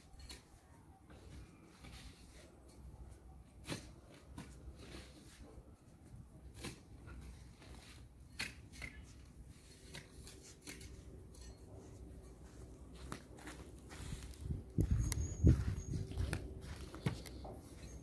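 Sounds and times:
garden tool scraping soil: 0:06.5 - 0:12.3.

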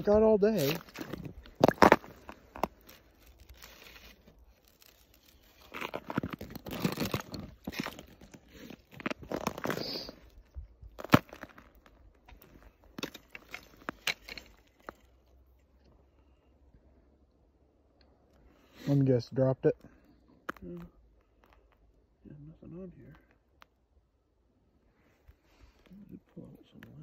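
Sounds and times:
crunching snow and rustling: 0:00.0 - 0:16.3.

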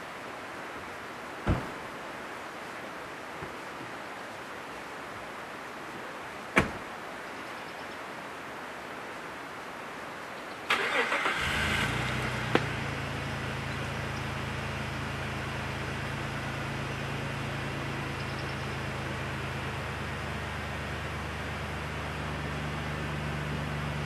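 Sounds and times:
car door slamming: 0:01.4 - 0:01.8, 0:06.6 - 0:06.8
starter cranking engine: 0:10.7 - 0:12.1
car engine idling: 0:10.7 - 0:24.0.

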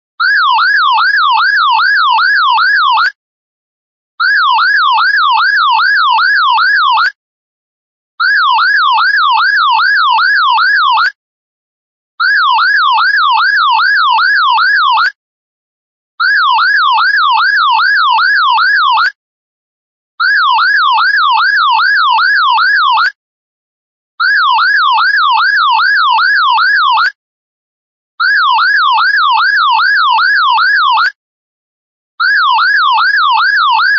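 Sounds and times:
electronic alarm sweeping tone: 0:32.2 - 0:33.9.

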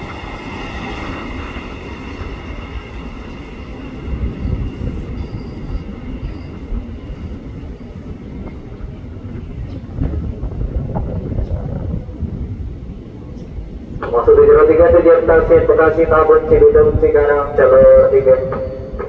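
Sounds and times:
train wheels rumbling on rails: 0:00.0 - 0:19.0.

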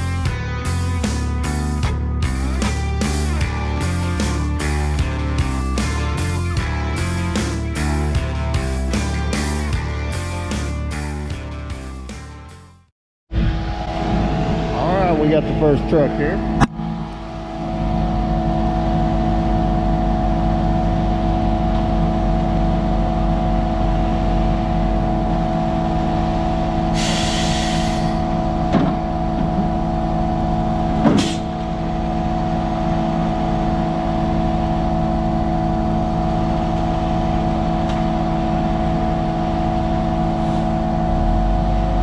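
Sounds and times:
diesel truck engines running: 0:00.0 - 0:12.6, 0:13.4 - 0:42.0
air hiss: 0:27.0 - 0:28.2.

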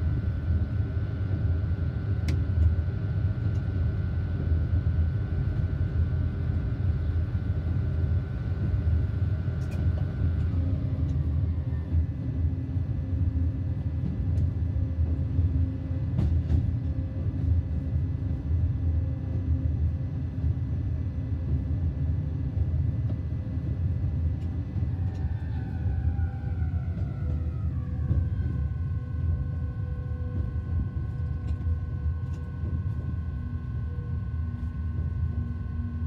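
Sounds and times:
high steady whine: 0:24.2 - 0:36.0.

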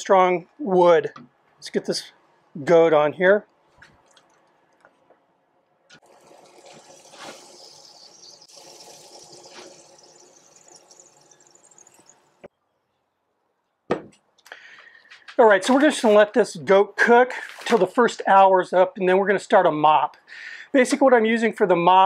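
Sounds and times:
meat sizzling on a grill: 0:06.8 - 0:09.8.

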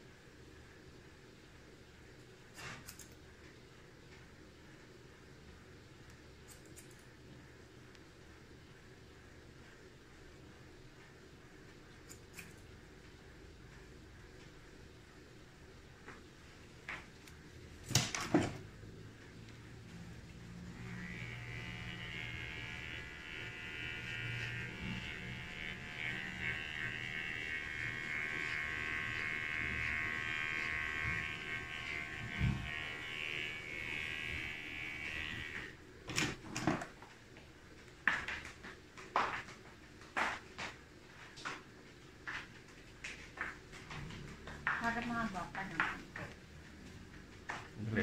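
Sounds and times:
electric hair clippers running: 0:20.3 - 0:36.4.

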